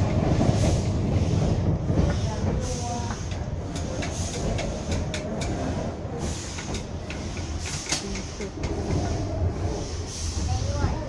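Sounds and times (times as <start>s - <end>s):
railway car rumble: 0.0s - 11.0s.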